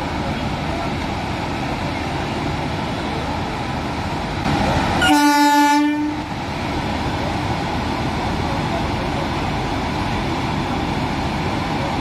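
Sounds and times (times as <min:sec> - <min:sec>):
locomotive rumble: 0:00.0 - 0:12.0
train pulling in: 0:00.0 - 0:12.0
train horn blast: 0:05.0 - 0:06.3.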